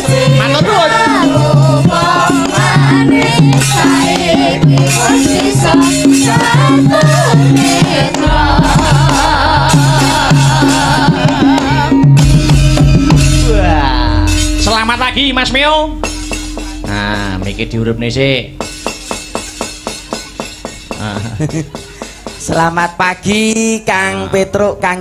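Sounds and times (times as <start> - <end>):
women singing: 0.0 - 12.4
band accompaniment with drum beat: 0.0 - 23.8
low steady bass note: 8.2 - 19.6.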